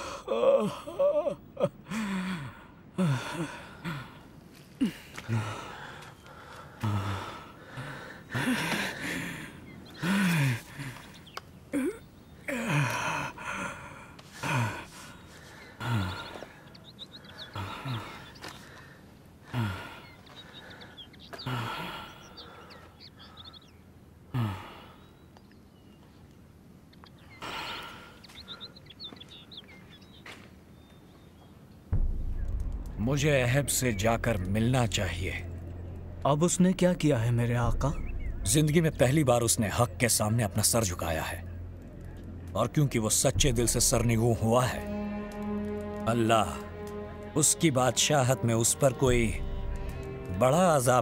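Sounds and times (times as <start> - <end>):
man sobbing and gasping: 0.0 - 6.1, 6.7 - 11.1, 11.7 - 16.6, 17.4 - 18.3, 19.5 - 20.1
man sighing heavily: 0.0 - 11.1, 11.7 - 15.1, 19.5 - 20.1, 24.3 - 25.0
small birds chirping: 0.0 - 47.4.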